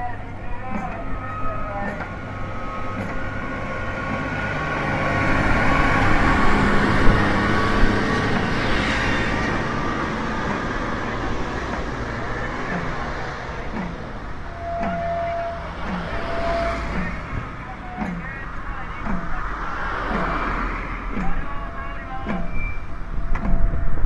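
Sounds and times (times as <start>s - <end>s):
car passing: 0.0s - 24.0s
truck passing: 0.0s - 24.0s.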